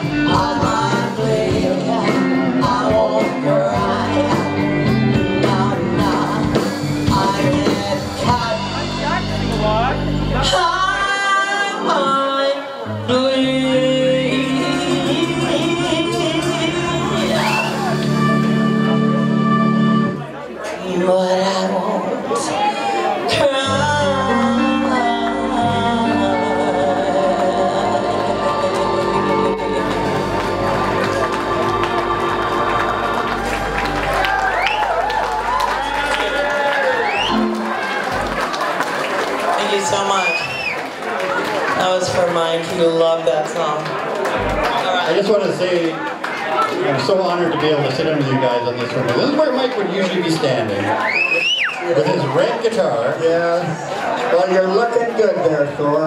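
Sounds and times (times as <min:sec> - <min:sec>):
woman singing lead: 0:00.0 - 0:09.2, 0:10.4 - 0:36.4
steady drum beat: 0:00.0 - 0:10.6
drums: 0:00.0 - 0:12.3, 0:13.0 - 0:20.2, 0:23.3 - 0:46.2
bass guitar: 0:00.0 - 0:20.4, 0:23.3 - 0:38.6, 0:44.3 - 0:45.0
electric guitar: 0:00.0 - 0:20.8, 0:21.8 - 0:40.8
keyboard: 0:00.0 - 0:40.2.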